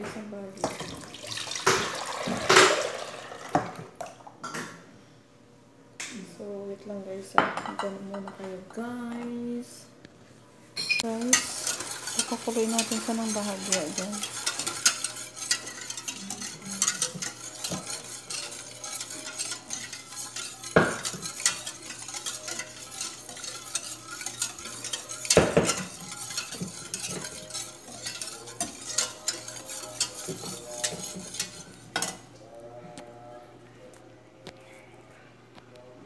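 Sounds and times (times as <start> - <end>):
whisk scraping a metal pot: 11.0 - 32.2.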